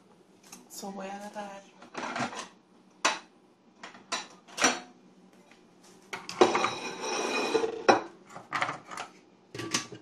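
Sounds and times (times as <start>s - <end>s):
dishes clinking and clattering: 1.9s - 5.0s, 6.2s - 10.0s.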